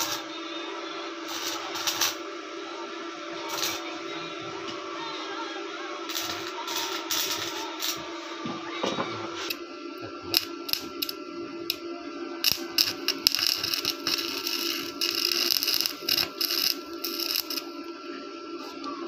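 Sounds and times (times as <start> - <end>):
welding electrode crackling: 0.0 - 0.2, 1.2 - 2.2, 3.5 - 4.0, 6.1 - 8.2, 10.3 - 11.8, 12.4 - 17.8
electrical hum: 0.0 - 19.0.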